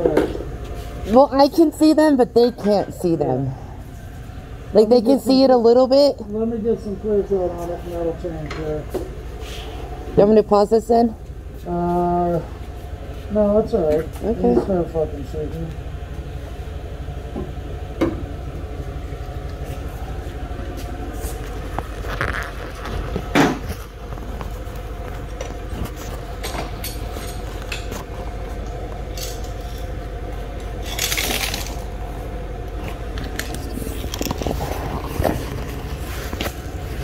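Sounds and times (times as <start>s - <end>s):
steady low hum: 0.0s - 37.0s
paint cans clinking and scraping: 33.4s - 36.6s.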